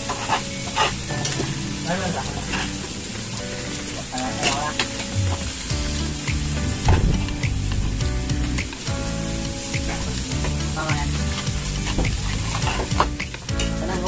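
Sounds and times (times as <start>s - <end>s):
utensils clinking on dishes: 0.0s - 5.2s
pork sizzling in a pan: 0.0s - 14.0s.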